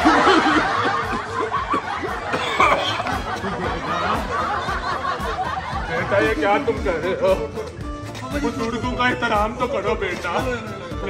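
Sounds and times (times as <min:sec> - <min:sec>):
snickering laughter: 0:00.0 - 0:06.3.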